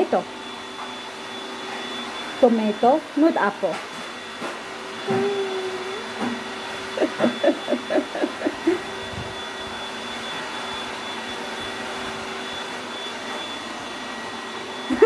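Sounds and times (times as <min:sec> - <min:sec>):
mechanical hum with high whine: 0:00.0 - 0:15.0.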